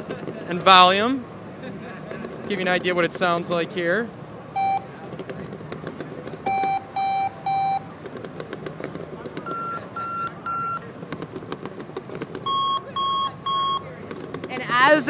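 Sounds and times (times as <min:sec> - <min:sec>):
alarm clock short beeps: 0:04.6 - 0:04.9, 0:06.5 - 0:07.9, 0:09.5 - 0:10.8, 0:12.5 - 0:14.0.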